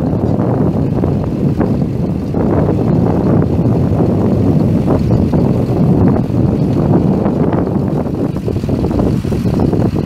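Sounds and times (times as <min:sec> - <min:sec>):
tractor diesel engine running: 0:00.0 - 0:10.0
wind buffeting microphone: 0:00.0 - 0:10.0.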